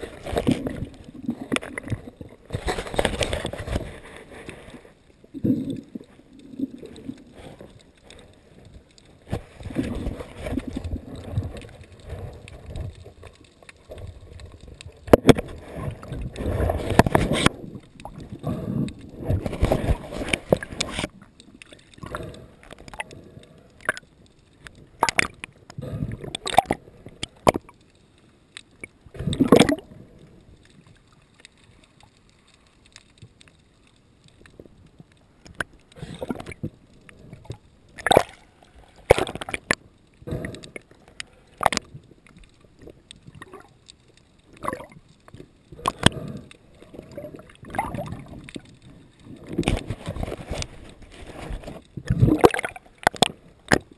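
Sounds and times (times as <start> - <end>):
water splashing and gurgling: 0.0 - 53.9.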